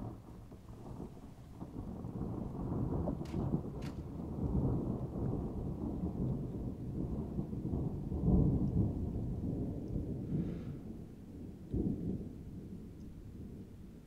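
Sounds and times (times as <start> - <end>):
sharp thunder clap: 0.0 - 13.7
rolling thunder rumble: 0.0 - 14.0.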